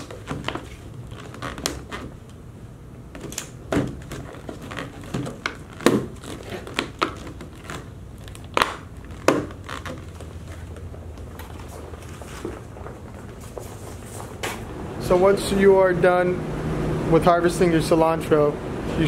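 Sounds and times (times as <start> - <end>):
steady low hum: 0.0 - 19.0
plastic containers crinkling: 3.2 - 14.4.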